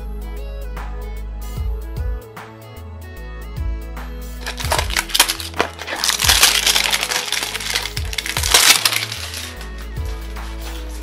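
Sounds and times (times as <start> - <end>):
background music: 0.0 - 11.0
cardboard box and wrapping tearing: 4.4 - 11.0.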